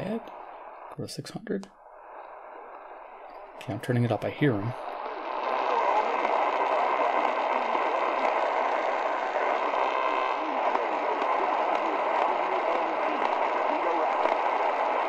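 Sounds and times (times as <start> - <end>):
radio static hiss: 0.0 - 15.0
faint announcer voice on radio: 3.6 - 15.0.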